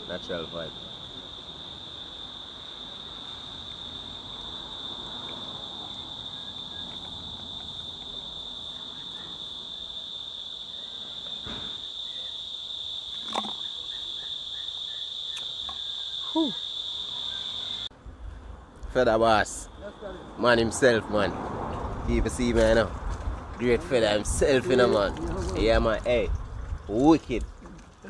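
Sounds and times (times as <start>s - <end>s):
crickets shrilling: 0.0s - 17.9s.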